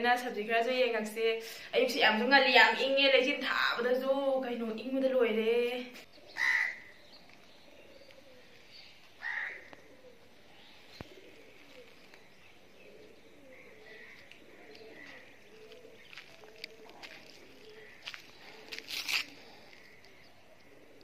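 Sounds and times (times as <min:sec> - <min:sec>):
small birds chirping: 0:00.2 - 0:21.0
doves cooing: 0:06.0 - 0:21.0.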